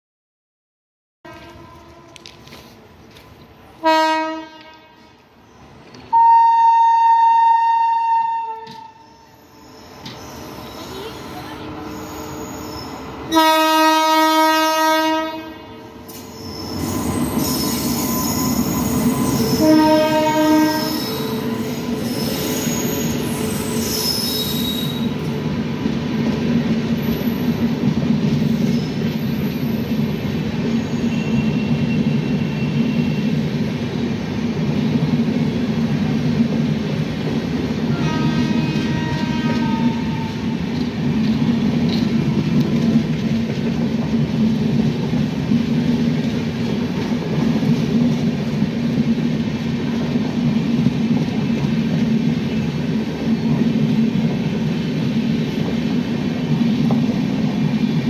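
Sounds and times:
train horn blast: 0:01.3 - 0:02.4, 0:03.8 - 0:05.1, 0:06.1 - 0:09.2, 0:13.3 - 0:16.0, 0:19.3 - 0:21.8, 0:37.9 - 0:40.6
train coaches rumbling past: 0:01.3 - 0:58.0
high-pitched wheel squeal: 0:08.8 - 0:13.1, 0:16.1 - 0:25.2, 0:30.7 - 0:33.3.

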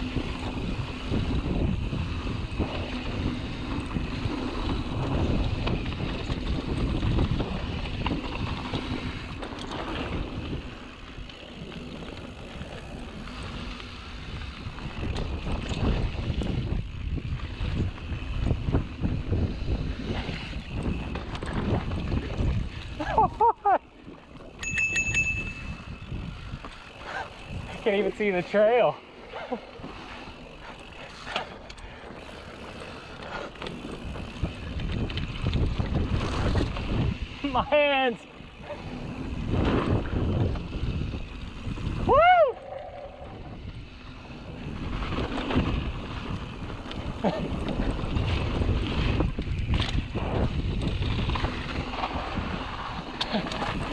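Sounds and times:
wind buffeting microphone: 0:00.0 - 0:23.4, 0:24.4 - 0:28.4, 0:29.3 - 0:37.7, 0:38.4 - 0:53.9
bike tyres rumbling on dirt: 0:00.0 - 0:53.9
bicycle bell ringing: 0:24.5 - 0:26.3
rider whooping: 0:41.8 - 0:43.8.

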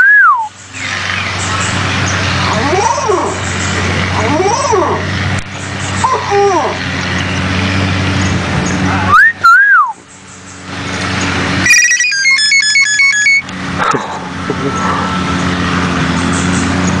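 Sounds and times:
bird whistling a rising note: 0:00.0 - 0:00.5, 0:09.1 - 0:10.0
bird mimicking a ringtone: 0:11.6 - 0:13.5.

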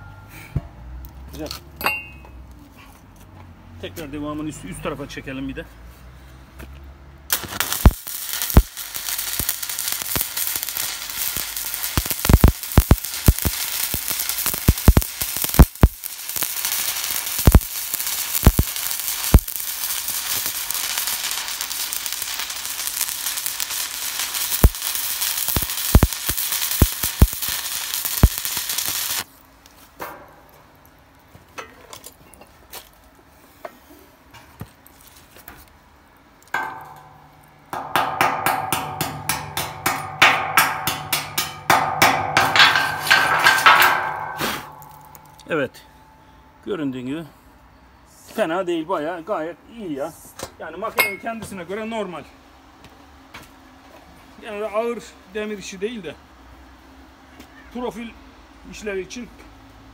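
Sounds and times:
welding arc crackling sizzle: 0:07.3 - 0:29.4, 0:36.4 - 0:45.6.

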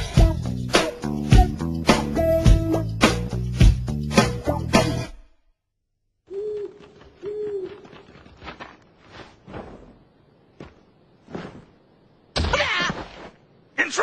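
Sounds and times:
owl hooting: 0:06.3 - 0:08.4.

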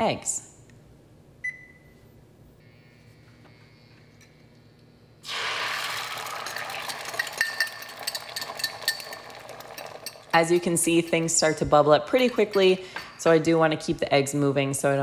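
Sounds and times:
eggs sizzling in hot oil: 0:05.2 - 0:10.6
fork clinking against cup: 0:06.5 - 0:11.3.

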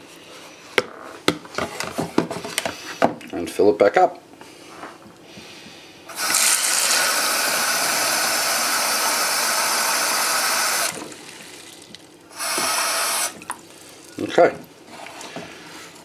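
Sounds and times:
tap water splashing into tank: 0:13.3 - 0:13.6.

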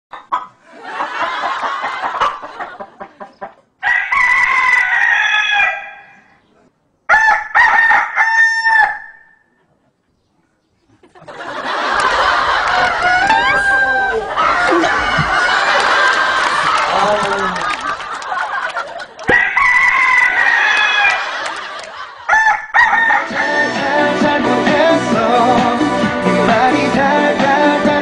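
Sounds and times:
rooster crowing: 0:03.8 - 0:06.2, 0:07.1 - 0:09.4, 0:11.7 - 0:16.7, 0:19.3 - 0:21.5, 0:22.2 - 0:24.0.

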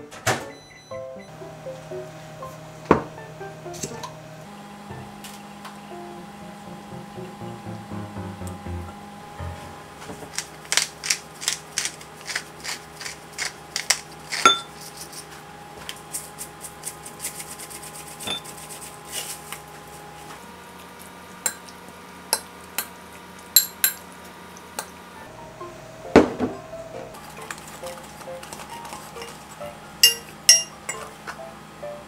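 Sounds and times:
utensils and dishes clinking: 0:13.4 - 0:15.2, 0:27.2 - 0:31.1.

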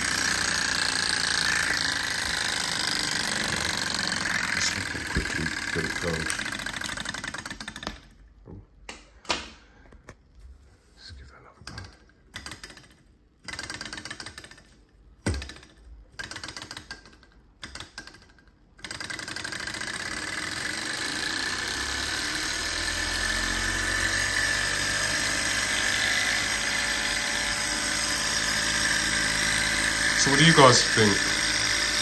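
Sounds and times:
stirling engine running rattle: 0:00.0 - 0:07.1, 0:20.2 - 0:32.0
flywheel flicked by hand: 0:11.8 - 0:21.1.

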